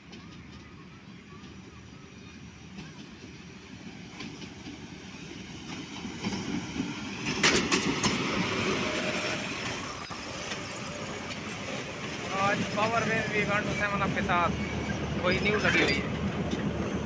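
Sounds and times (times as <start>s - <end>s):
locomotive engine rumbling: 0.0s - 17.0s
train wheels clacking over rail joints: 5.6s - 14.0s.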